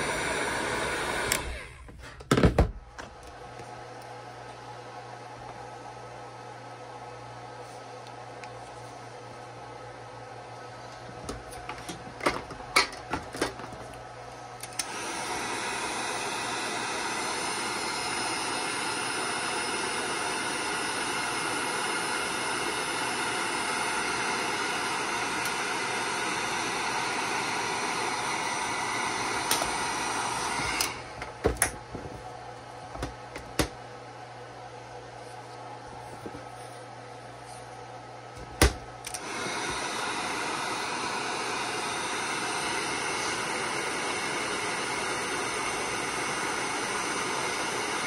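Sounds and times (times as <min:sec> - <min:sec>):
heat gun blowing with hiss: 0:00.0 - 0:01.9, 0:14.6 - 0:31.2, 0:38.6 - 0:48.0.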